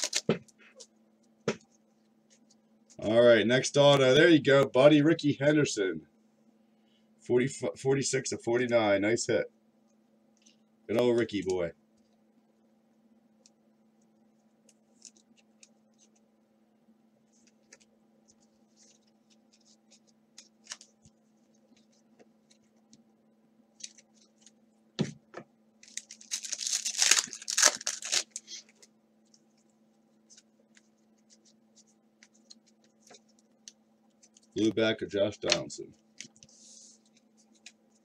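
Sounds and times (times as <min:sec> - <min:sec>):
wrapper tearing and crinkling: 0:00.0 - 0:00.3, 0:25.8 - 0:28.6.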